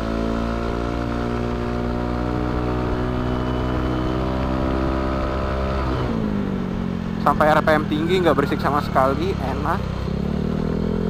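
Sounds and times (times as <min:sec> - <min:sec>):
scooter engine revving: 0:00.0 - 0:11.0.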